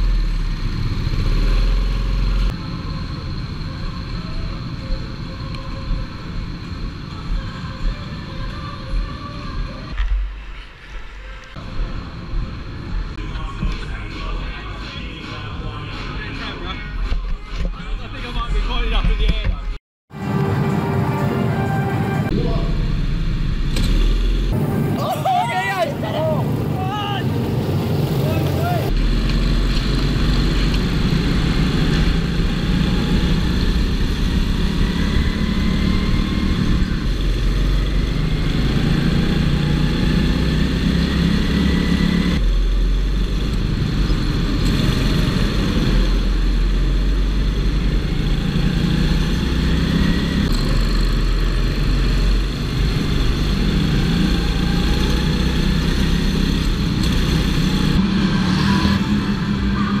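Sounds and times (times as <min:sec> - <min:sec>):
go-kart engine revving: 0:28.4 - 1:00.0.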